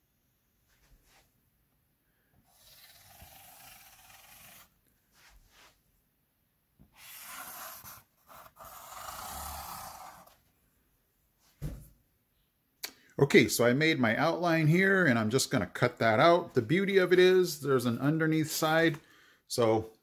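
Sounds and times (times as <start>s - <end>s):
marker scratching on cardboard: 2.5s - 4.8s, 7.0s - 10.3s.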